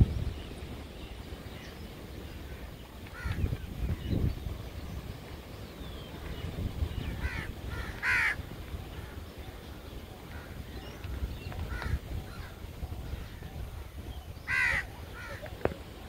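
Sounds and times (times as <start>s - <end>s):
wind on microphone: 0.0s - 16.0s
crows cawing: 2.4s - 3.4s, 7.2s - 9.2s, 10.2s - 13.5s, 14.5s - 15.5s.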